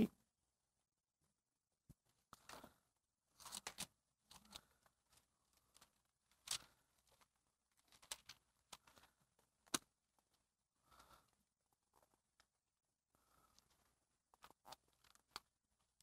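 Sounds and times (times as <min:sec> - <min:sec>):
paper pages rustling: 0:02.2 - 0:10.4.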